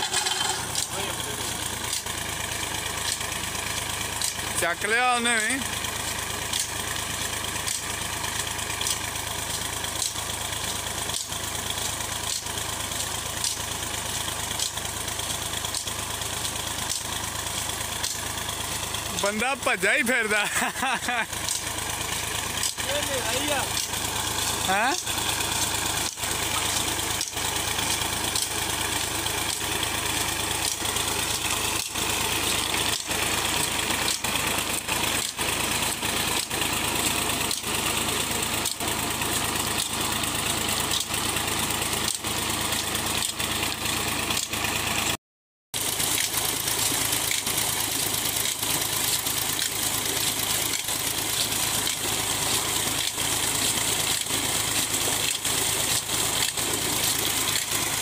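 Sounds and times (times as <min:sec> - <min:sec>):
diesel tractor engine running: 0:00.0 - 0:45.2, 0:45.8 - 0:58.0
water gushing into a tank: 0:21.2 - 0:45.0, 0:45.8 - 0:58.0.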